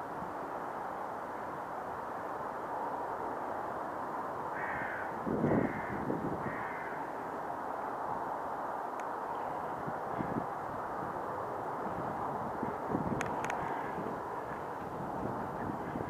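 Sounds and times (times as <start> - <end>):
crow cawing: 4.5 - 7.1.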